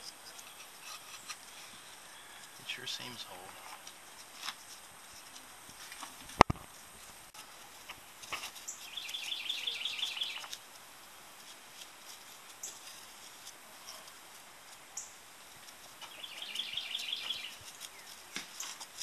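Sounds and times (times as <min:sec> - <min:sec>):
faint scattered ticks: 0:00.0 - 0:19.0
bird singing rapid trill: 0:08.7 - 0:10.5, 0:16.1 - 0:18.2.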